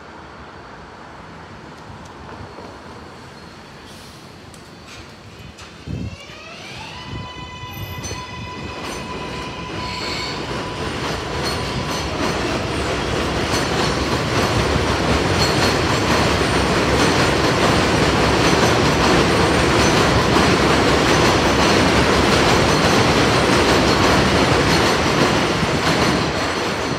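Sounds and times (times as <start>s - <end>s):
train electric motors whining: 4.5s - 13.9s
train wheels rumbling on steel: 4.6s - 26.9s.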